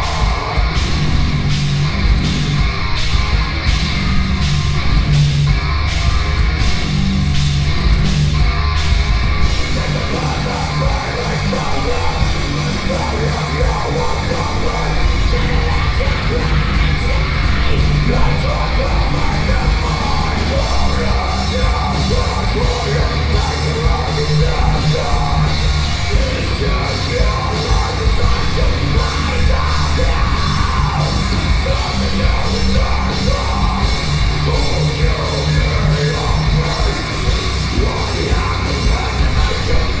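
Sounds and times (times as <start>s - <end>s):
distorted electric guitars: 0.0s - 40.0s
pounding drum kit: 0.0s - 40.0s.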